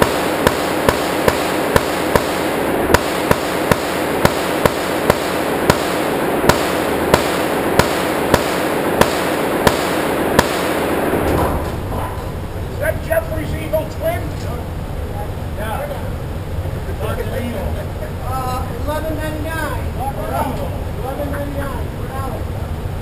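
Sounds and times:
semi-automatic gunfire: 0.0s - 11.3s
constant wash of noise: 0.0s - 23.0s.

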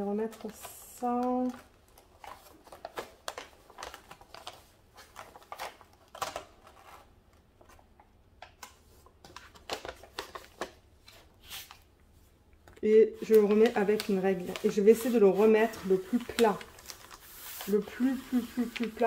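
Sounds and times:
release paper rustling and crinkling: 13.1s - 19.0s.

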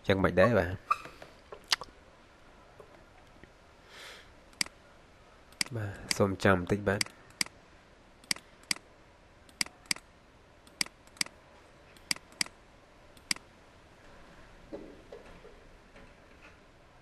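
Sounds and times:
mouse buttons clicking: 12.0s - 12.5s, 13.2s - 13.4s.

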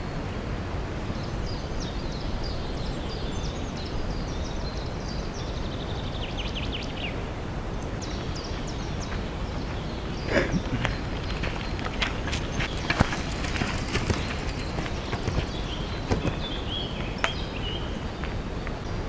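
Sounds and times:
birds chirping: 7.9s - 19.0s.

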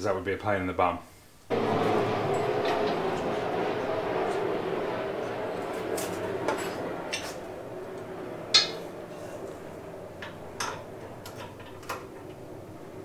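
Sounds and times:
metal clank: 5.0s - 13.0s.

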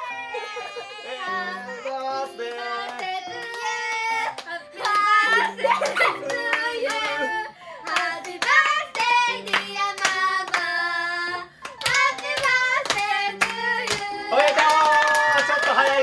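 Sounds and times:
group singing a celebration song: 0.0s - 16.0s
rhythmic hand clapping: 2.0s - 16.0s.

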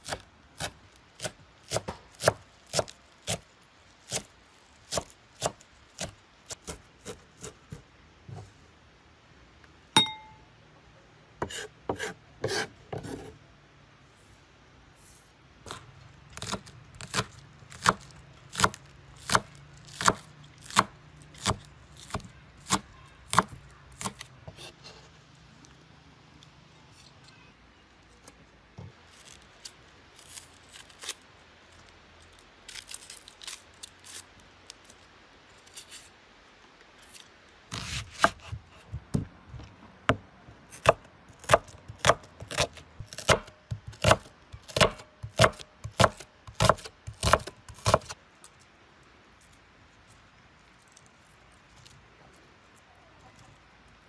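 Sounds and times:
knife chopping on cutting board: 11.4s - 13.3s, 37.7s - 39.3s, 40.8s - 48.1s.

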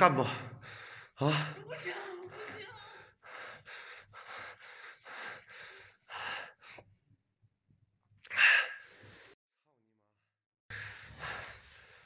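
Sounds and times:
person breathing hard and fast: 0.4s - 7.0s, 8.3s - 9.4s, 10.7s - 12.0s.

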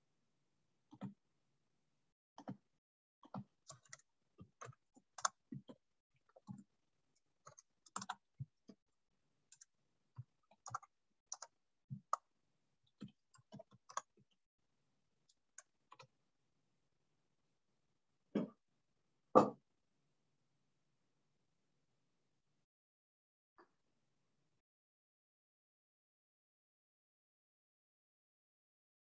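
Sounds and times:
computer keys clicking: 3.2s - 6.7s, 7.4s - 8.2s, 10.4s - 12.2s, 12.9s - 14.2s.

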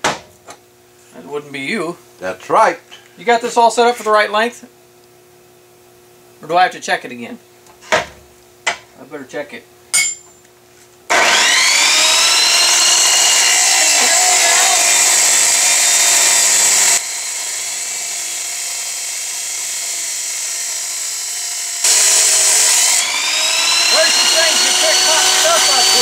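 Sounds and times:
chop saw cutting steel pipe: 11.1s - 26.0s.

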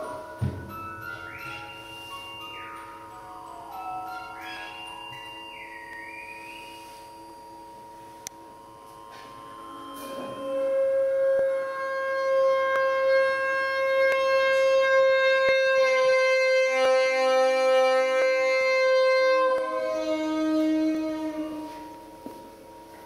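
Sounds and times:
music box notes: 0.0s - 11.6s
saxophone long note: 9.0s - 22.2s.

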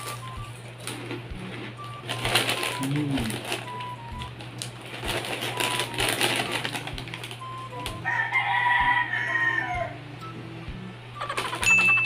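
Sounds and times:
snack bag crinkling: 1.8s - 8.1s
rooster crowing: 8.0s - 10.0s.

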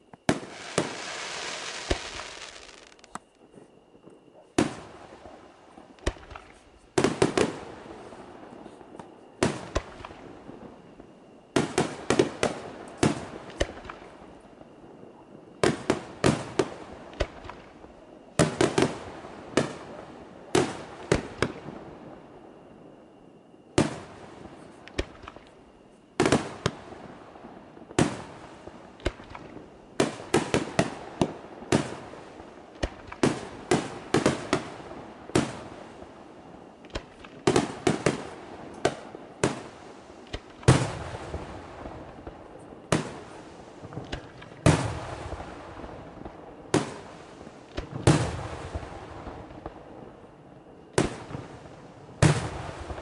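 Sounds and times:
firework shells bursting: 0.3s - 3.3s.

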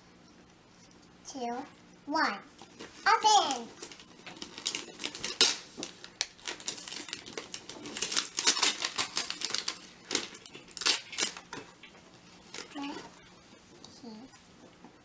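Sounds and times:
paper and plastic crinkling: 2.6s - 13.9s.

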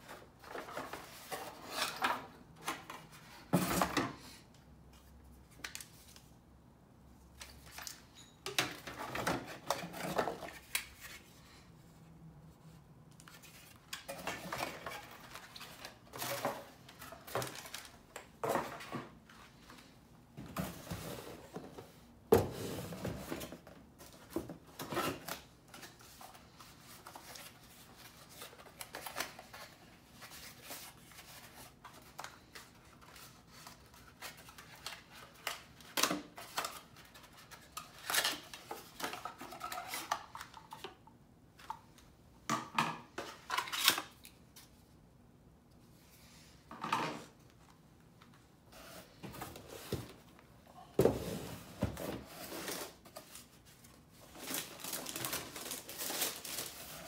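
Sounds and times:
cardboard and plastic rustling: 0.0s - 4.3s, 13.2s - 40.9s, 47.3s - 57.0s.

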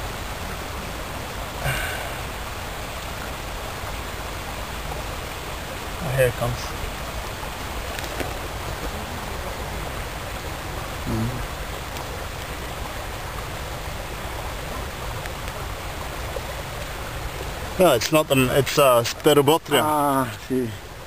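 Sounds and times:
rushing outdoor noise: 0.0s - 21.0s
low voiced murmur: 11.0s - 11.5s.

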